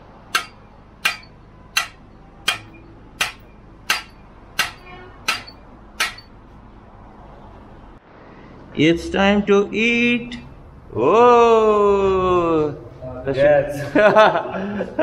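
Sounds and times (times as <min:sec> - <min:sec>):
hammer striking steel: 0:00.3 - 0:06.4.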